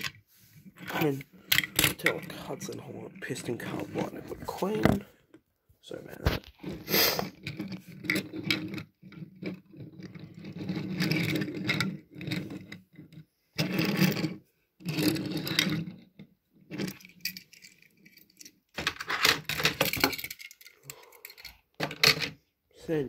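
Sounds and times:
toy cars scraping on wooden table: 0:00.0 - 0:05.1, 0:06.1 - 0:16.1.

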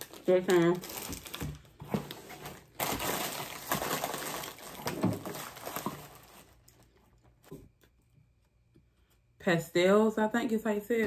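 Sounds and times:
plastic wrappers crinkling: 0:00.0 - 0:07.5.

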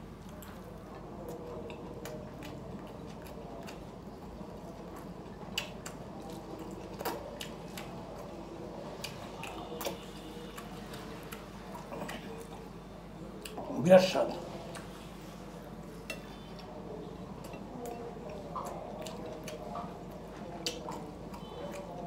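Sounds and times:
person chewing: 0:00.0 - 0:13.7, 0:14.6 - 0:22.0.

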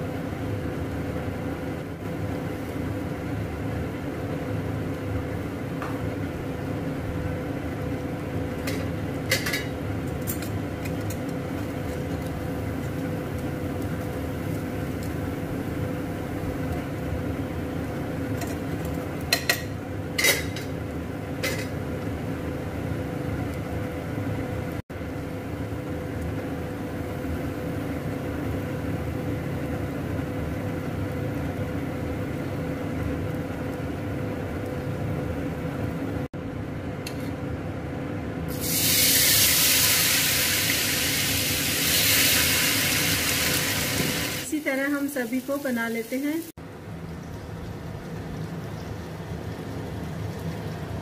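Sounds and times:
low hum of pan on stove: 0:00.0 - 0:51.0
batter sizzling in hot fat: 0:38.5 - 0:51.0.

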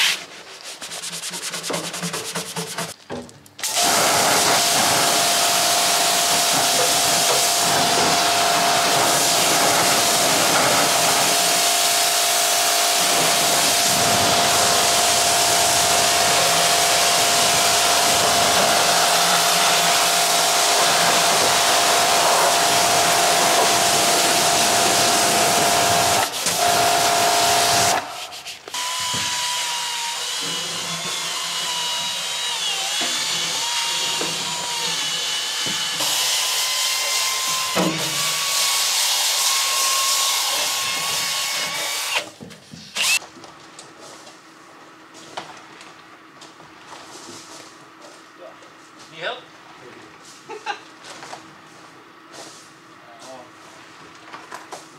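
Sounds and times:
pressure washer spray hiss: 0:03.6 - 0:28.6
pressure washer whine: 0:03.6 - 0:42.3.

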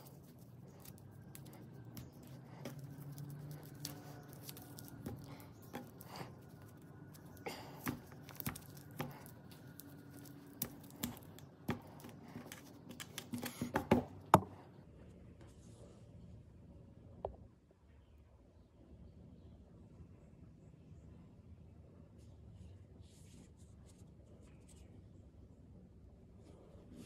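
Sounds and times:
rope rustling and scratching: 0:00.0 - 0:14.3.

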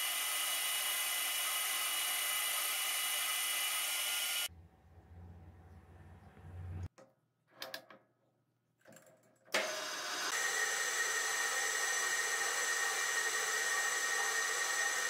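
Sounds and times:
tool cutting steel: 0:09.5 - 0:15.0
metal lathe spindle whine: 0:09.6 - 0:15.0.

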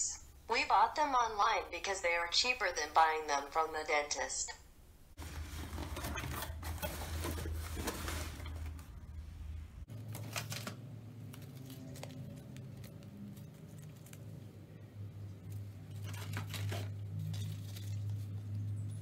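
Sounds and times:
steady low hum: 0:00.0 - 0:19.0
cardboard box being opened: 0:05.2 - 0:08.9
plastic packaging crinkling: 0:05.2 - 0:09.2, 0:09.9 - 0:14.4.

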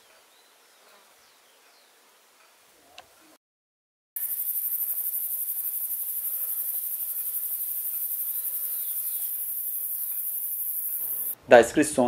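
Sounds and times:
high-pitched insect chorus: 0:04.2 - 0:11.4.

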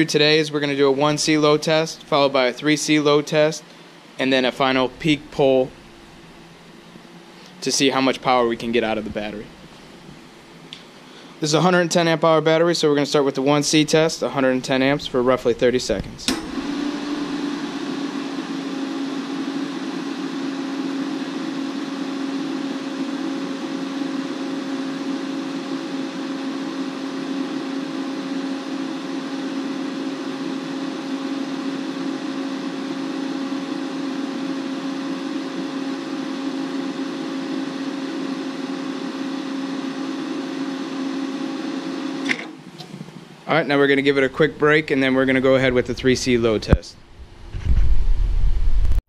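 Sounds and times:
constant low hum: 0:00.0 - 0:16.5
cooling fan whirring: 0:00.0 - 0:49.0.

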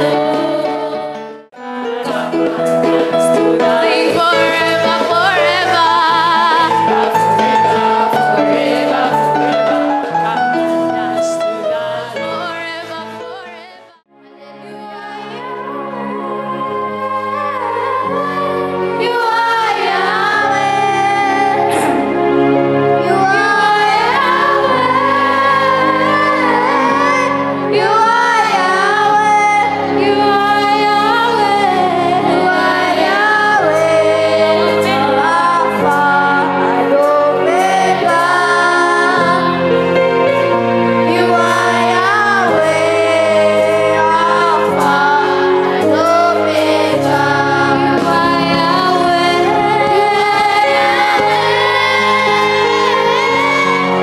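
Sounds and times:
instrumental accompaniment: 0:00.0 - 0:54.0
person singing: 0:01.7 - 0:22.2.

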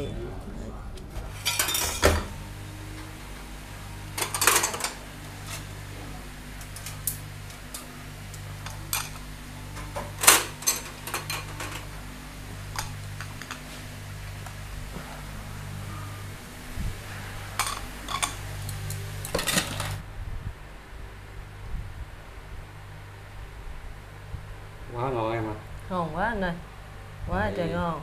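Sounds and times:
steady low hum: 0:00.0 - 0:28.0
dishes and utensils clinking: 0:01.3 - 0:03.2, 0:04.0 - 0:05.8, 0:06.6 - 0:12.0, 0:12.7 - 0:13.8, 0:17.5 - 0:20.0.

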